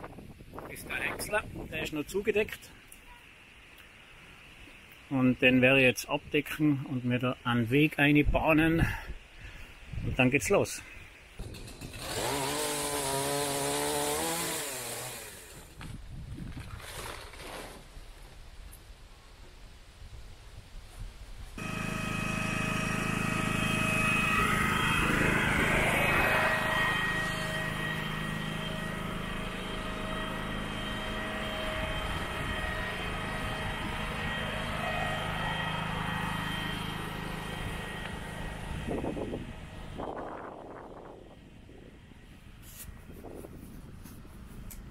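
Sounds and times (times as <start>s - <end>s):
wood chipper whining: 11.4s - 15.9s, 21.6s - 41.2s
generator engine hum: 21.6s - 42.6s.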